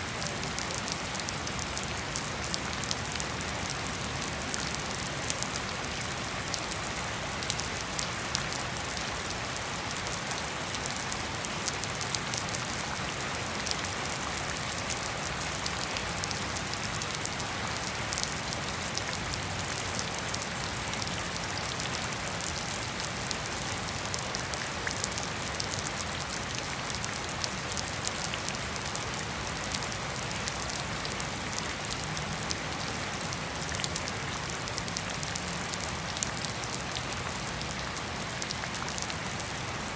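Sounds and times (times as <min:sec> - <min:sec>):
rain hissing on lawn and pavement: 0:00.0 - 0:39.9.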